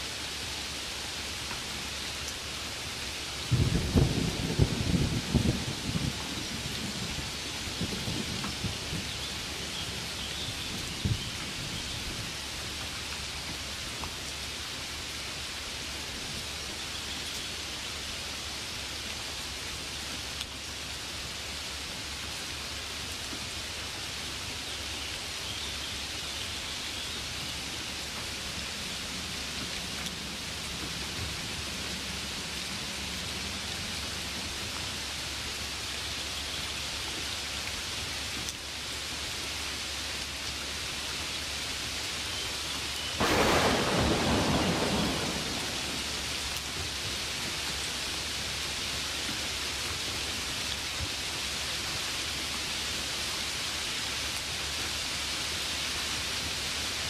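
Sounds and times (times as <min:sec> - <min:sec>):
rainfall hiss: 0:00.0 - 0:57.0
thunder clap: 0:43.2 - 0:47.0.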